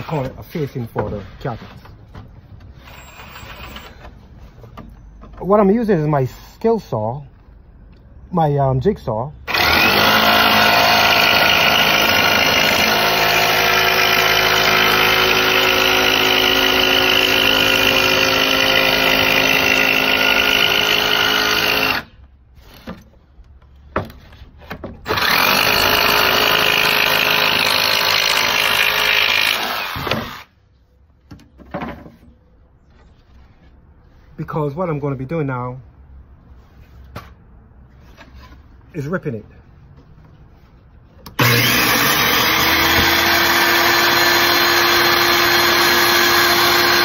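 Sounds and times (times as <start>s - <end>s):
electric saw cutting plywood: 9.5s - 22.1s, 25.0s - 30.5s, 41.4s - 47.0s.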